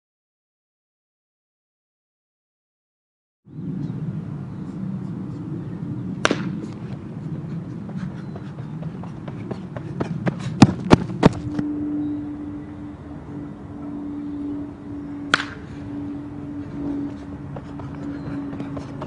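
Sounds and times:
sharp cracks: 6.2s - 6.6s, 15.3s - 15.6s
bat striking ball: 6.2s - 6.7s, 15.3s - 15.7s.

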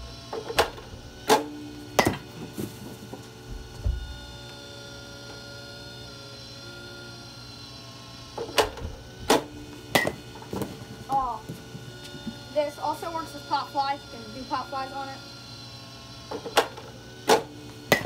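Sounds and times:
bat hitting ball: 0.3s - 2.4s, 8.4s - 11.6s, 16.3s - 18.0s.

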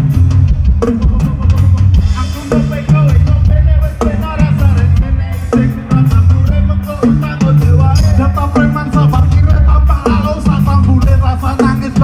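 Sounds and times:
ska band playing loud: 0.0s - 12.0s.

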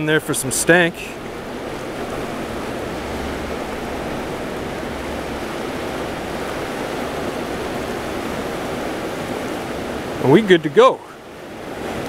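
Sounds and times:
river rushing over rocks: 0.0s - 12.0s.

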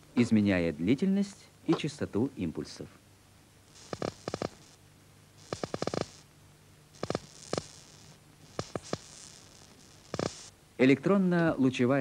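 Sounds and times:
faint steady hum: 0.0s - 12.0s
sharp crackling clicks: 3.7s - 4.8s, 5.4s - 6.3s, 7.0s - 10.5s.

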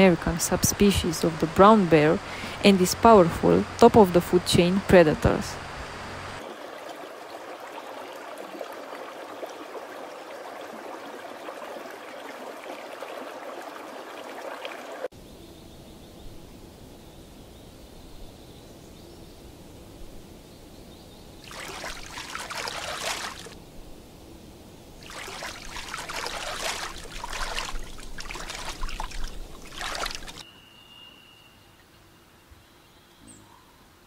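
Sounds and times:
low water murmur: 0.0s - 15.1s, 21.4s - 23.6s, 24.6s - 30.4s
water sloshing and splashing: 0.6s - 15.1s, 21.4s - 23.6s, 25.0s - 30.4s.

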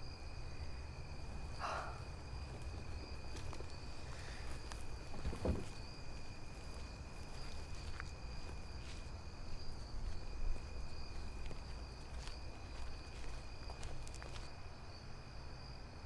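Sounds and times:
crickets chirping: 0.0s - 16.0s.

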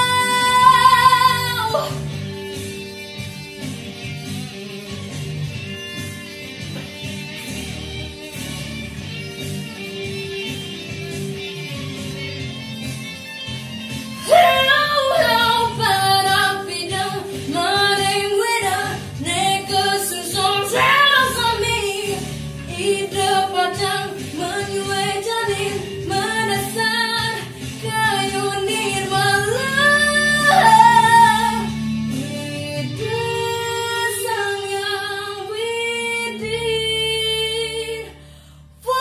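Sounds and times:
girl singing: 0.0s - 2.0s, 14.2s - 31.8s, 32.6s - 38.2s, 38.8s - 39.0s
instrumental accompaniment: 0.0s - 37.1s.

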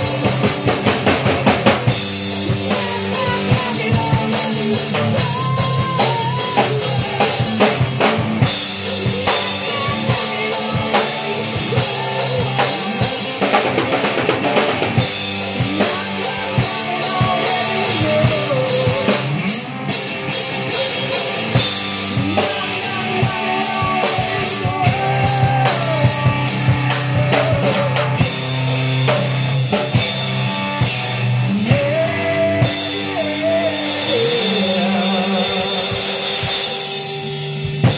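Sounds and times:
drum kit: 0.0s - 37.9s
electric guitar: 0.0s - 37.9s
person singing into microphone: 2.3s - 14.1s, 15.4s - 19.7s, 20.6s - 28.3s, 31.5s - 36.9s.

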